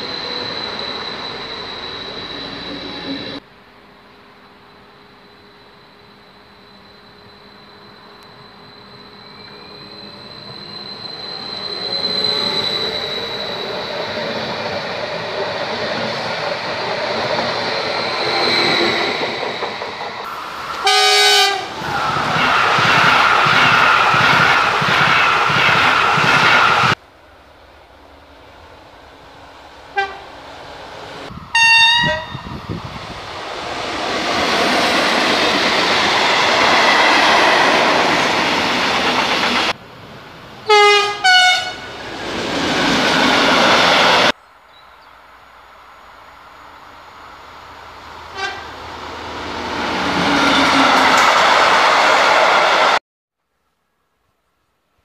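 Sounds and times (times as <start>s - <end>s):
electric train rushing with whine: 0.0s - 44.4s, 45.2s - 53.0s
freight train rumbling past: 7.6s - 44.4s, 45.2s - 53.0s
train horn blast: 20.7s - 21.7s, 30.0s - 30.3s, 31.5s - 32.5s, 40.7s - 41.9s, 48.3s - 48.8s.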